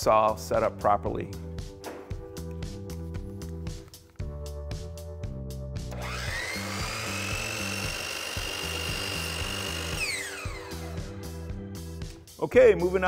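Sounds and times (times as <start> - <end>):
background music with steady beat: 0.0 - 13.0
miter saw whine: 5.9 - 11.0
saw blade cutting wood: 6.0 - 11.0.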